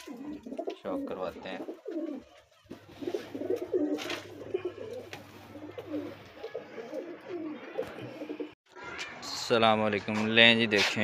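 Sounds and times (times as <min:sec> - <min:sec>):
pigeons cooing: 0:00.0 - 0:08.6.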